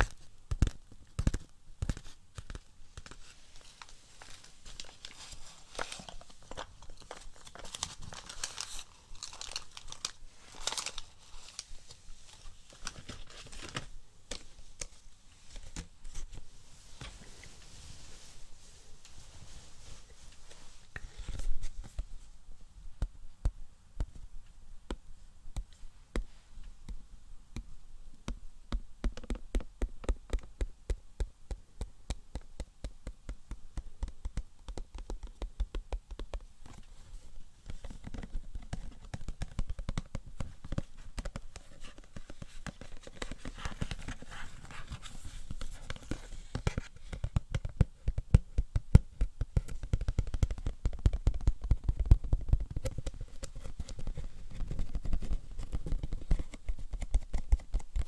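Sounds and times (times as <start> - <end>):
rapid tapping on hard objects: 28.7 - 36.5, 46.6 - 58.0.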